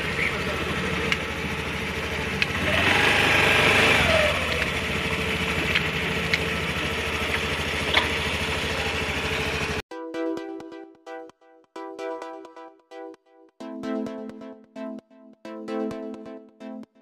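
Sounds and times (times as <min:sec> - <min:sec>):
scooter engine revving: 0:00.0 - 0:09.8.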